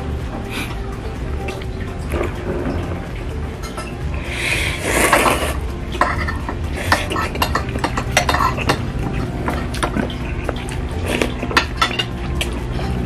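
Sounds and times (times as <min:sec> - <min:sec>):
man slurping noodles: 0:04.2 - 0:05.7, 0:09.1 - 0:11.5
cutlery clinking in glass bowl: 0:05.0 - 0:13.0.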